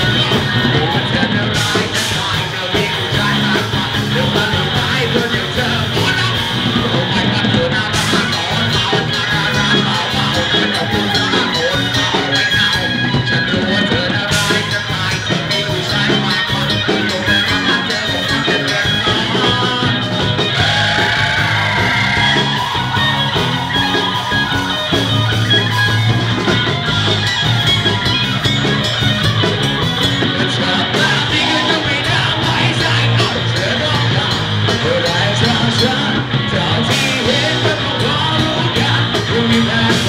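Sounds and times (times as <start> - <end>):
person singing: 0.0 - 25.7, 30.2 - 40.0
loud rock music from live band: 0.0 - 40.0.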